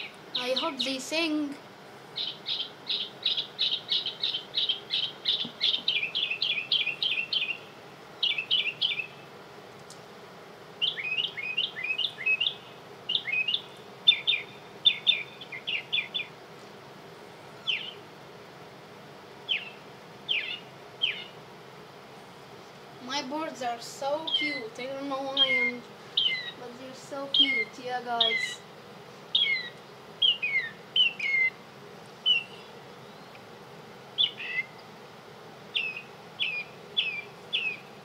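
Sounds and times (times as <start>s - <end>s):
recorded bird chirps: 0.0s - 1.4s, 2.2s - 9.3s, 10.8s - 16.4s, 17.4s - 18.0s, 19.4s - 21.4s, 23.9s - 31.6s, 32.2s - 33.5s, 34.1s - 34.9s, 35.6s - 38.0s.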